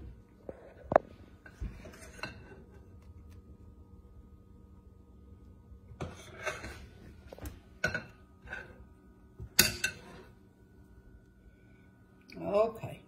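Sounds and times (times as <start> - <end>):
metal spatula scraping glass bowl: 6.0 - 6.9.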